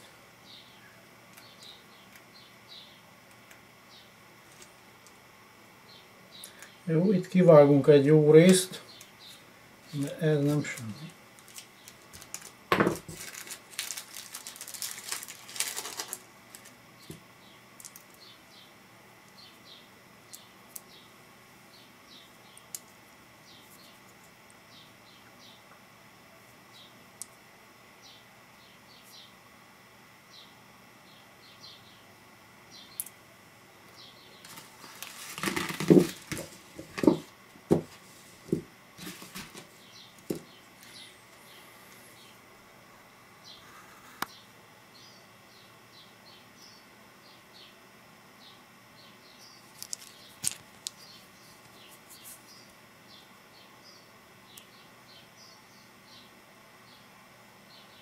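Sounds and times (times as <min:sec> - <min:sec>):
paper envelope crumpling: 0:10.0 - 0:16.8, 0:34.4 - 0:37.2, 0:37.9 - 0:39.8, 0:49.7 - 0:51.0
plastic bag crinkling: 0:10.0 - 0:16.8, 0:34.4 - 0:37.3, 0:39.0 - 0:39.8, 0:49.7 - 0:51.0.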